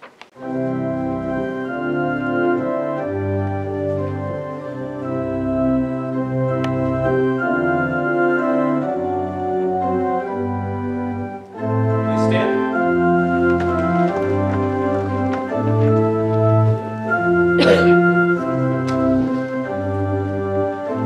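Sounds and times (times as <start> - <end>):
church organ playing hymn: 0.4 - 21.0.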